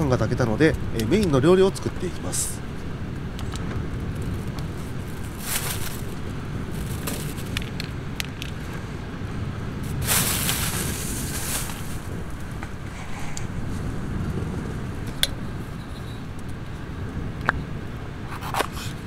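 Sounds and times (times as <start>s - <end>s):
steady low rumble: 0.0s - 19.0s
plastic bag crinkling: 4.2s - 8.6s, 9.8s - 12.4s.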